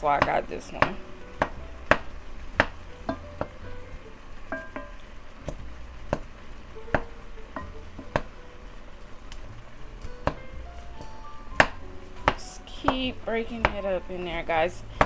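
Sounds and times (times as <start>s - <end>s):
wooden spoon mashing in pot: 4.4s - 10.6s, 11.6s - 14.1s.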